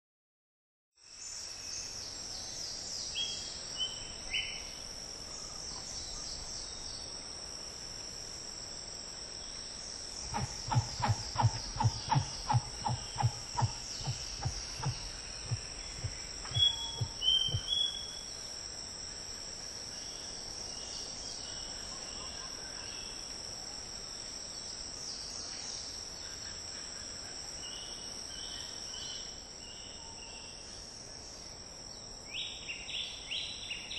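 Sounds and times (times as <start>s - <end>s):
insect chorus: 1.0s - 33.9s
low pulses: 10.2s - 18.0s.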